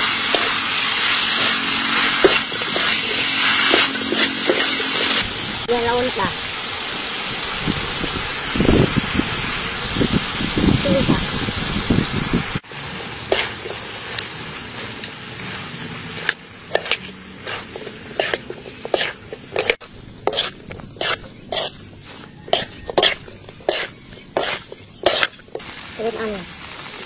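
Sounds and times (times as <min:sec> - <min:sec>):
spatula scraping a wok: 0:00.0 - 0:05.2, 0:12.8 - 0:25.6
steady sizzle: 0:00.0 - 0:27.0.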